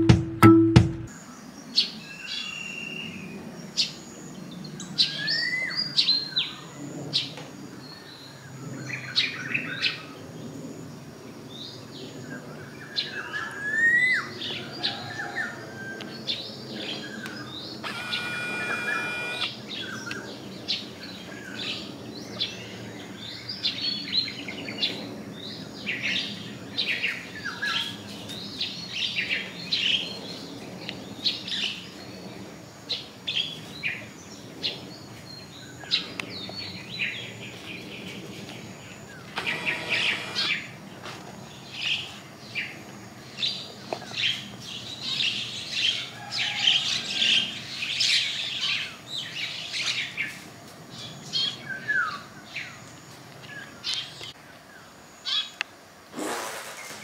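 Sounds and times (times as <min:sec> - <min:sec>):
held multi-tone sound: 0:00.0 - 0:01.1, 0:17.8 - 0:19.5.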